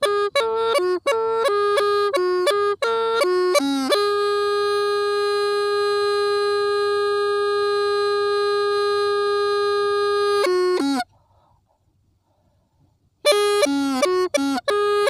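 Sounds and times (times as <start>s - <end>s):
bamboo flute playing: 0.0s - 11.1s, 13.2s - 15.0s.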